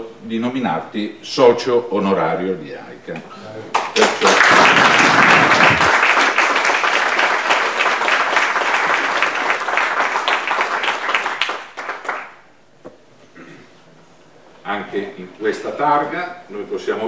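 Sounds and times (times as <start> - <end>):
audience applauding: 3.7 - 12.4.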